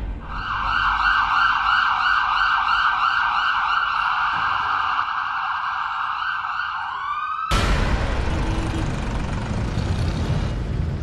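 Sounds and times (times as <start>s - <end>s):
siren wailing: 0.2s - 7.6s
loud rush of noise: 7.5s - 11.0s.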